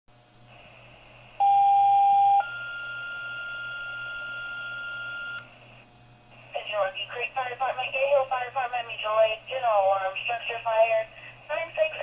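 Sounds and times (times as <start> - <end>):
faint radio hiss: 0.2 - 1.4, 5.4 - 12.0
pager two-tone alert: 1.4 - 5.4.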